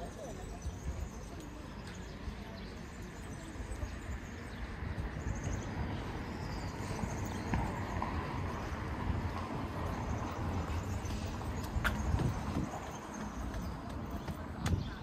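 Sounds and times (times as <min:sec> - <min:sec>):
faint distant voices: 0:00.0 - 0:08.7
low street rumble: 0:00.0 - 0:15.0.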